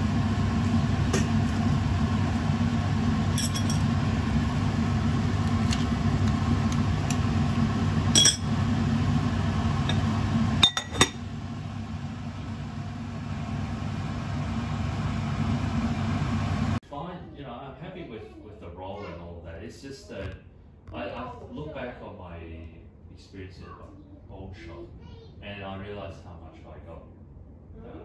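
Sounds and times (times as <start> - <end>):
steady low hum: 0.0 - 16.8
ceramic lid clinking on pot: 10.6 - 11.2.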